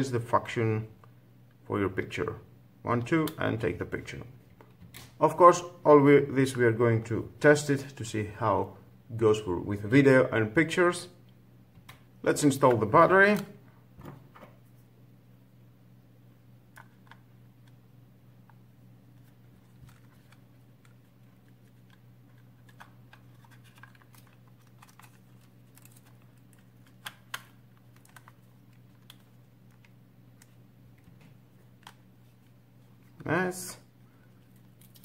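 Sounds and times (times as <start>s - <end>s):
faint plastic clicks and handling: 18.4s - 33.3s.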